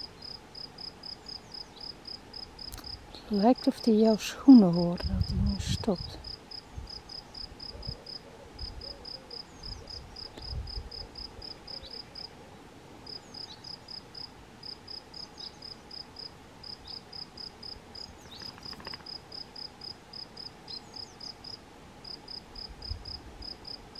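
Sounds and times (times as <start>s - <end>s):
cricket chirping: 13.1s - 23.9s.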